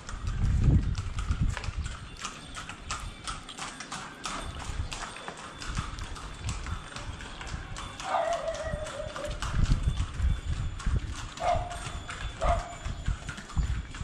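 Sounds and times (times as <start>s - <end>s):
footsteps on concrete: 0.5s - 1.9s.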